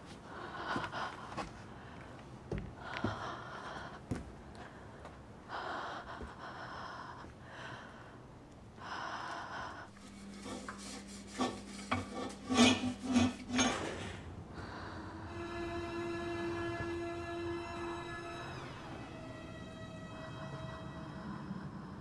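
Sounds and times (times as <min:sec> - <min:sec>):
slow heavy breathing: 0:00.0 - 0:12.5, 0:14.0 - 0:15.4
low held music tone: 0:14.2 - 0:22.0.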